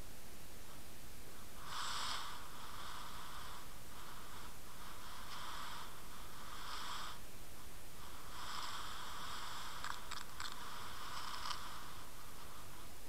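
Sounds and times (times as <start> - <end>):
underwater hiss: 1.7 - 3.6
sharp clicks: 9.8 - 10.7.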